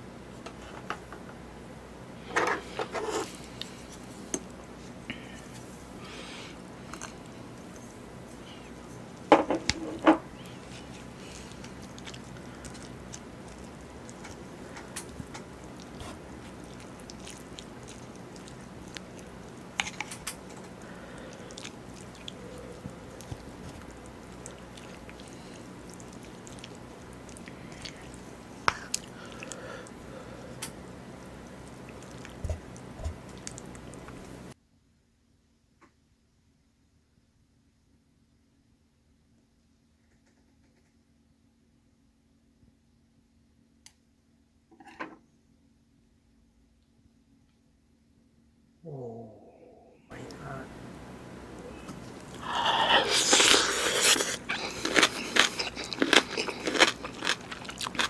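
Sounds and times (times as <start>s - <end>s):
chewing: 6.8s - 34.4s, 51.5s - 58.0s.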